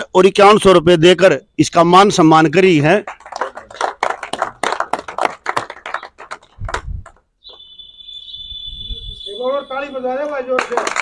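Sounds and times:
crowd applauding: 0:03.0 - 0:07.2, 0:10.2 - 0:11.0
steady high-pitched whistle: 0:07.4 - 0:10.3.

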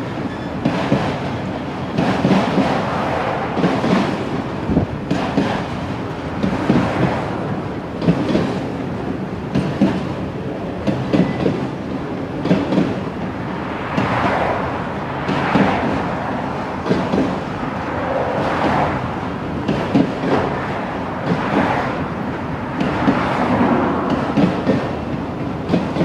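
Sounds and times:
wheels clacking over rail joints: 0:00.0 - 0:07.2, 0:07.9 - 0:08.8, 0:10.8 - 0:13.2, 0:18.5 - 0:26.0
freight cars rumbling past: 0:00.0 - 0:09.4, 0:11.3 - 0:26.0.

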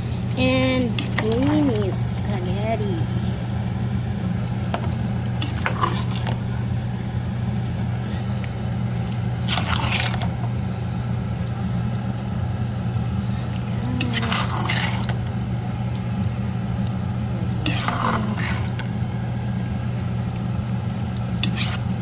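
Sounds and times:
steady low hum: 0:00.0 - 0:22.0
utensils scraping in a pot: 0:09.5 - 0:10.3, 0:14.0 - 0:15.2, 0:17.6 - 0:18.8, 0:21.4 - 0:21.9.

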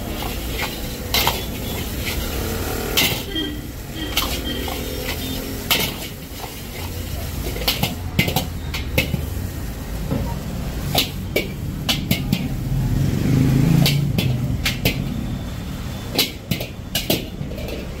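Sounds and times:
metal ladle clanking on wok: 0:02.9 - 0:03.4.

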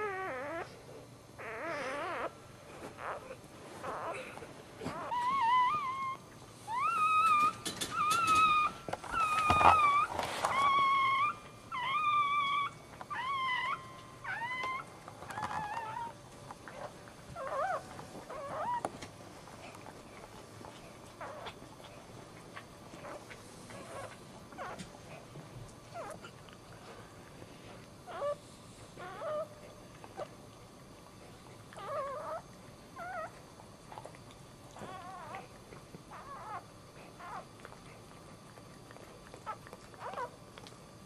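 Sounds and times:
puppy squealing: 0:00.0 - 0:00.8, 0:01.4 - 0:02.3, 0:04.8 - 0:18.8, 0:29.0 - 0:29.5, 0:31.8 - 0:32.4, 0:33.0 - 0:33.3, 0:34.8 - 0:35.4, 0:36.1 - 0:36.6, 0:39.4 - 0:40.3.

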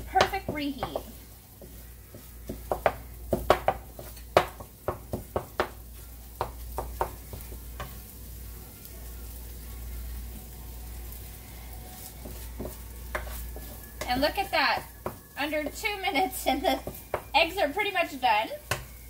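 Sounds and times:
eggs sizzling in oil: 0:00.0 - 0:19.0
spatula scraping metal skillet: 0:11.9 - 0:18.9.

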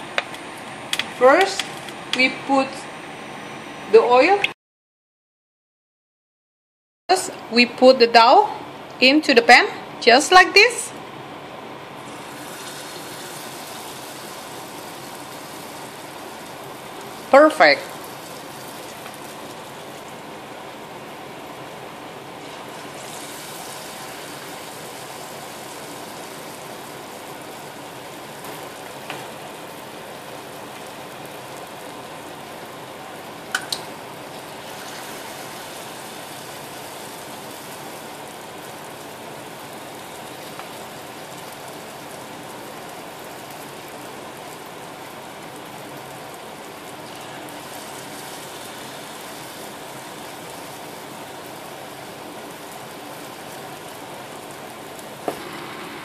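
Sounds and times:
dough deep-frying in hot oil: 0:12.0 - 0:56.0.

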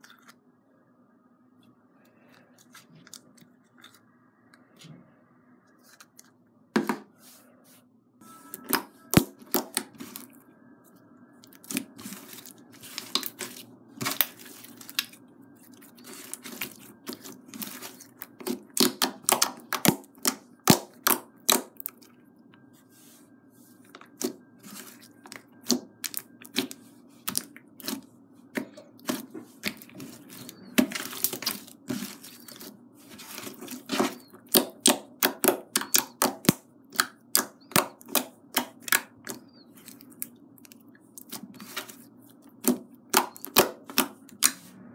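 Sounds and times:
sticky slime popping and clicking: 0:18.4 - 0:22.0, 0:33.9 - 0:39.6, 0:42.6 - 0:44.6.

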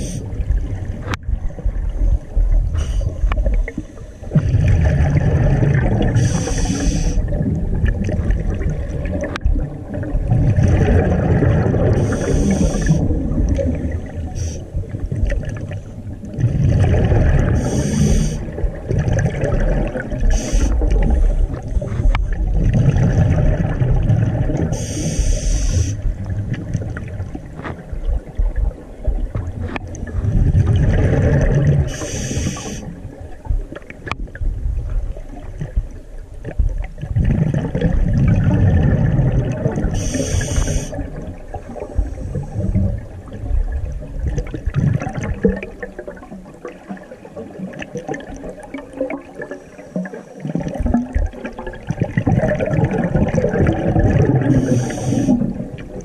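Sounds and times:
exhaled bubbles gushing: 0:00.0 - 0:56.0
air hissing through regulator: 0:06.2 - 0:07.3, 0:12.0 - 0:13.0, 0:14.3 - 0:14.6, 0:17.6 - 0:18.4, 0:20.3 - 0:20.8, 0:24.7 - 0:26.1, 0:31.9 - 0:32.9, 0:40.0 - 0:41.0, 0:54.5 - 0:55.5.

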